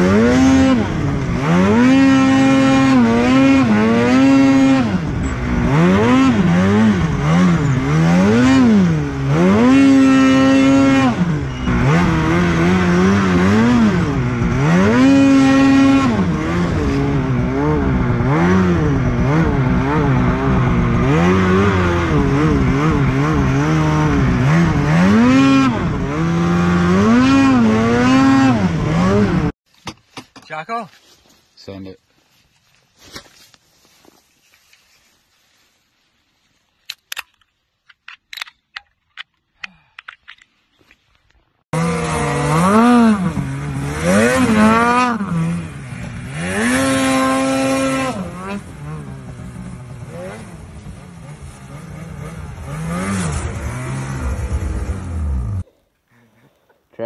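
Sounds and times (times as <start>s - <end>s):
snowmobile engine revving: 0.0s - 29.6s, 41.7s - 55.7s.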